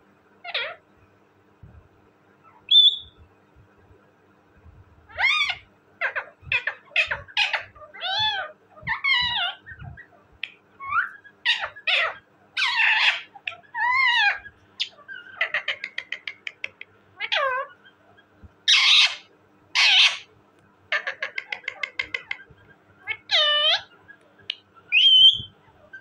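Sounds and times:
parakeet calls: 0.4 - 0.8, 2.4 - 3.2, 5.1 - 20.3, 20.9 - 26.0
parakeet screeches: 0.4 - 0.8, 5.1 - 10.0, 10.8 - 16.3, 17.2 - 17.8, 18.7 - 20.3, 20.9 - 24.0, 24.9 - 26.0
parakeet clicking chatter: 11.5 - 17.5, 20.9 - 23.9.

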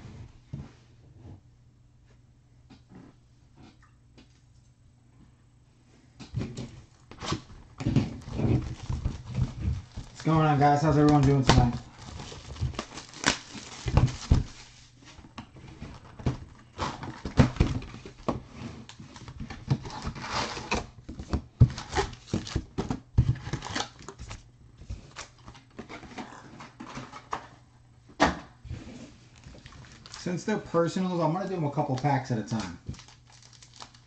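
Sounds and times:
foil wrapper rustling: 8.1 - 15.0, 29.3 - 34.0.

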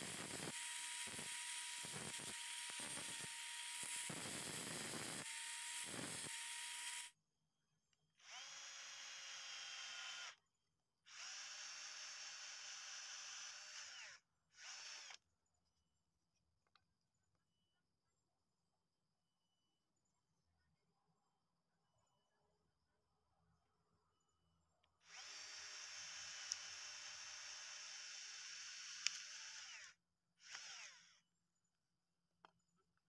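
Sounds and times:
angle grinder cutting bamboo: 0.0 - 7.2, 25.1 - 31.1
power drill boring through bamboo: 0.0 - 7.2, 8.2 - 10.4, 11.1 - 15.2, 25.0 - 31.2.

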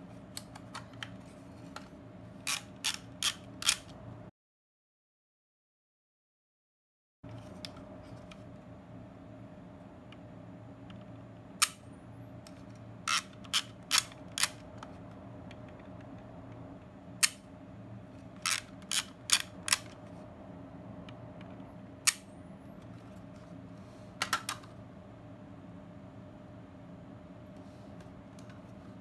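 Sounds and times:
film advance ratcheting clicks: 2.5 - 3.9, 18.4 - 19.9.

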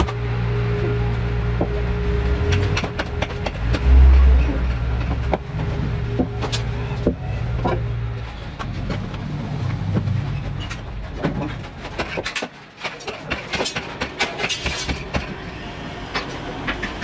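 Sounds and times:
low rumble: 0.0 - 11.8.

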